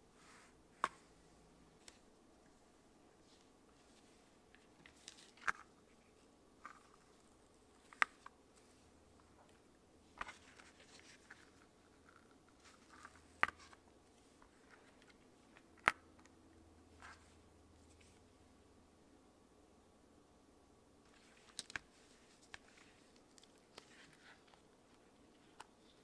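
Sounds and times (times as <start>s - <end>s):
soft rustling: 0.1s - 15.6s, 21.0s - 26.0s.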